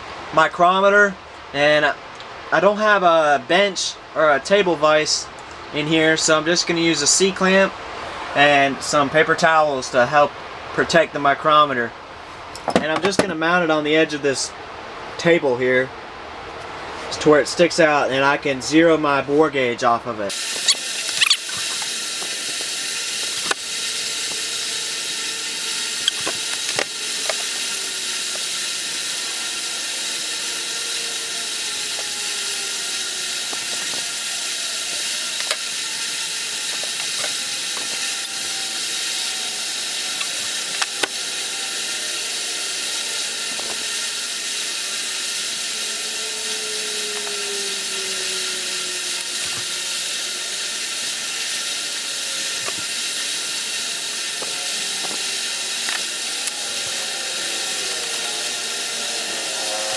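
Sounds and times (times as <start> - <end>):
metal tools clicking: 20.6 - 21.9.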